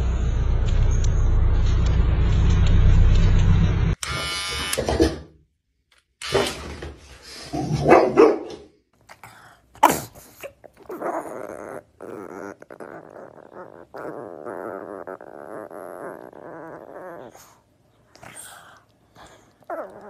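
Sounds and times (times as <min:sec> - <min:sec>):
dog barking and growling: 0:07.4 - 0:20.0
pug vocalising: 0:09.0 - 0:20.0.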